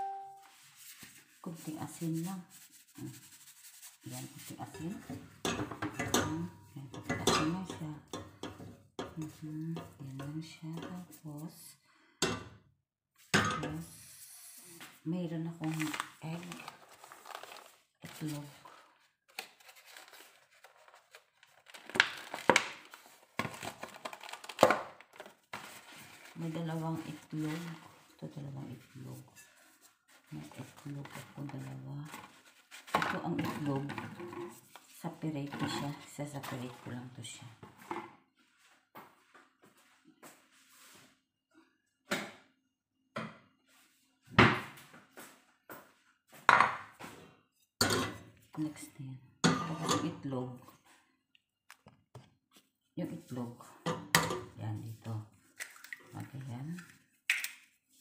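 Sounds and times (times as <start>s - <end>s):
plastic gloves crinkling: 0.2s - 4.9s, 15.6s - 33.0s
bowls and dishes clattering: 5.0s - 9.2s, 47.8s - 48.3s, 49.4s - 50.2s.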